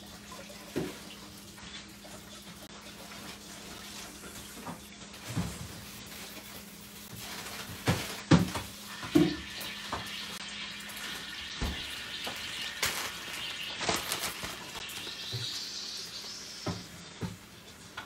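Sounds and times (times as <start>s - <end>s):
knocks and clunks of kitchen items: 0.7s - 1.2s, 4.1s - 6.5s, 7.1s - 10.2s, 11.5s - 15.6s, 16.6s - 18.0s.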